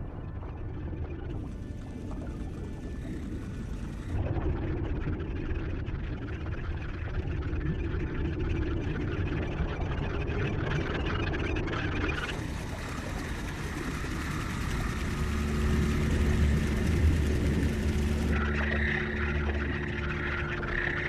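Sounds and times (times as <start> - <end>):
water wash: 12.3 - 20.3
boat engine humming: 12.3 - 21.0.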